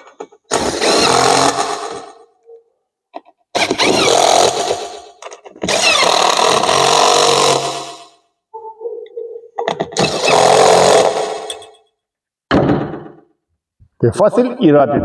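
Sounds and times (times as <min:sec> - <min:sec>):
cordless drill driving screws: 0:00.5 - 0:02.1, 0:03.6 - 0:08.0, 0:10.0 - 0:11.7.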